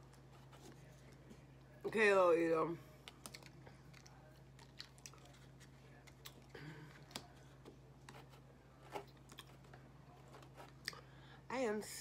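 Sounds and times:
chewing tortilla chips: 3.0s - 8.2s, 8.9s - 11.2s.

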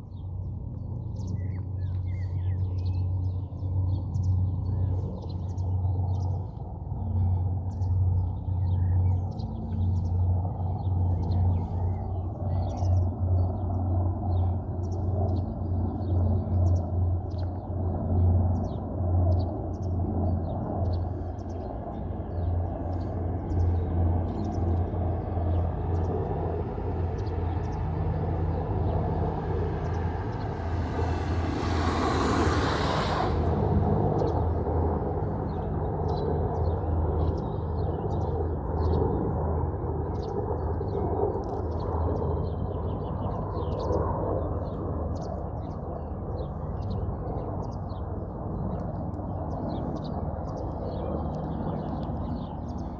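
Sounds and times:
birds chirping: 0.0s - 39.3s, 40.0s - 52.9s
helicopter rotor drone: 0.0s - 52.9s
brief rushing hiss: 31.0s - 33.7s.

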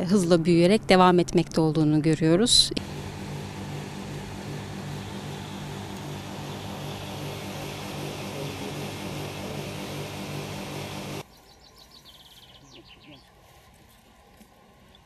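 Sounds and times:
propeller hum with hiss: 2.8s - 11.2s.

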